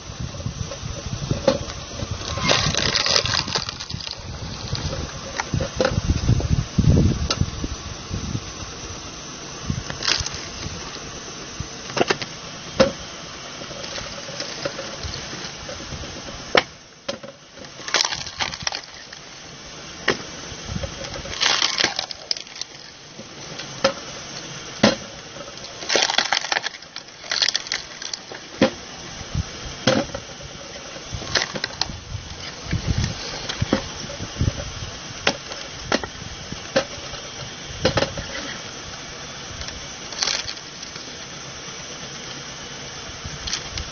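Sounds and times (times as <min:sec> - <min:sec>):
motor hum: 0:00.0 - 0:43.9
wood splitting cracks: 0:02.2 - 0:05.0, 0:17.6 - 0:19.3, 0:21.1 - 0:23.0, 0:24.8 - 0:28.8, 0:31.2 - 0:31.9, 0:39.6 - 0:41.1.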